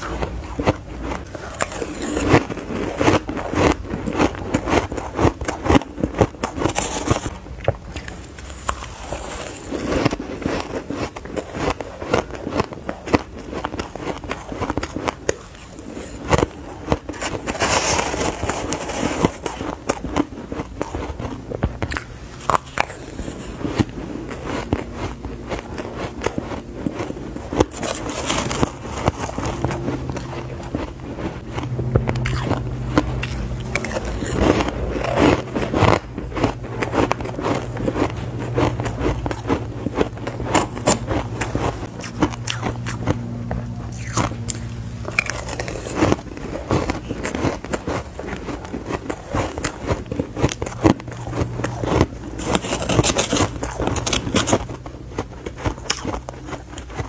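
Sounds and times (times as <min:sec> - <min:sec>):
metal spoon scraping ice: 0:00.0 - 0:07.3, 0:08.1 - 0:13.2, 0:22.4 - 0:30.8, 0:32.2 - 0:43.0, 0:43.9 - 0:46.2, 0:50.4 - 0:54.8
crunching bites of ice: 0:32.0 - 0:43.1, 0:43.9 - 0:54.8, 0:55.5 - 0:57.0.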